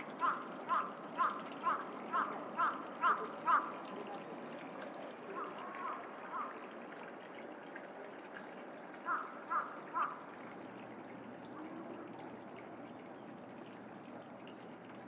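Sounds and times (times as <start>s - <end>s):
crow cawing: 0.2s - 3.8s, 9.1s - 10.2s.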